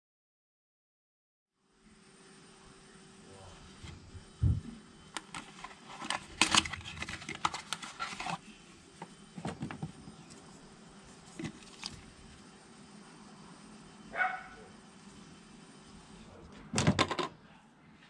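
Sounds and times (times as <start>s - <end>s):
cardboard box rustling and scraping: 5.3s - 8.6s, 11.2s - 12.3s.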